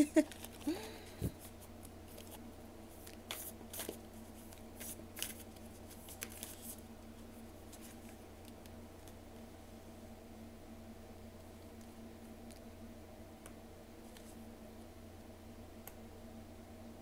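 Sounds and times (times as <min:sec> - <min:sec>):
faint low hum: 0:00.0 - 0:17.0
cards being shuffled: 0:00.2 - 0:02.4, 0:03.0 - 0:09.2.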